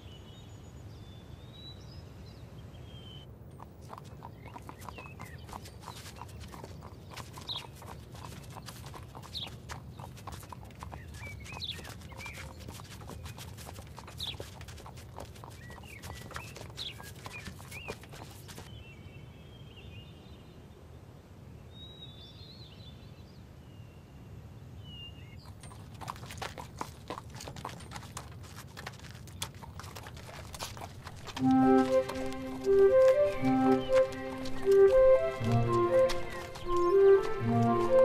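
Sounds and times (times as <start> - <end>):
hooves clopping on stony path: 3.4 - 18.8, 25.4 - 38.0
footsteps on stony path: 3.6 - 18.8, 25.4 - 38.0.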